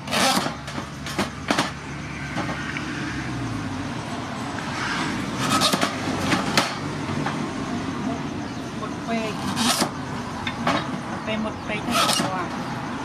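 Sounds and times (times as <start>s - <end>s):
blade chopping sugarcane: 0.0s - 1.7s.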